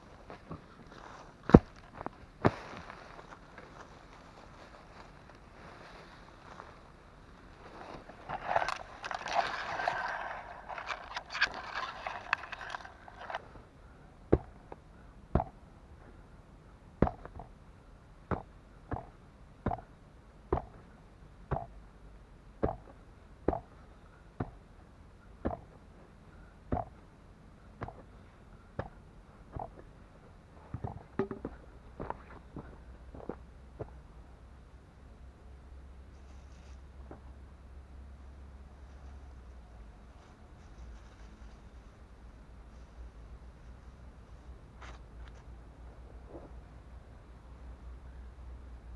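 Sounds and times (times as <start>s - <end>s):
rustling through leaves: 0.0s - 13.6s, 40.2s - 44.0s
hand hoe chopping into ground: 25.4s - 25.8s, 27.8s - 28.1s.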